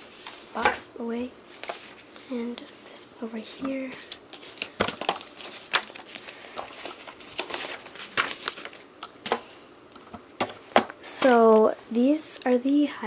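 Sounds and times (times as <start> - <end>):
paper packaging rustling: 1.5 - 11.7.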